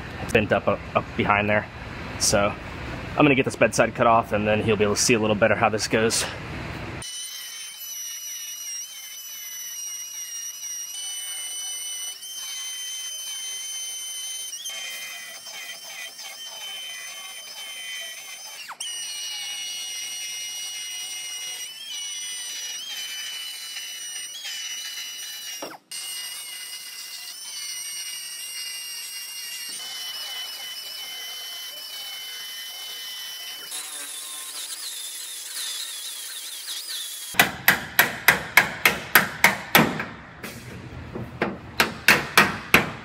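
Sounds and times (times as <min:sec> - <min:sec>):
belt sander whining on metal: 0:07.0 - 0:37.4.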